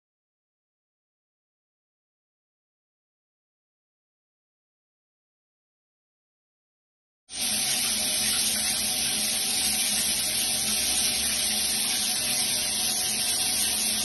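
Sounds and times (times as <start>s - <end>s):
shower head water spraying: 7.3s - 14.0s.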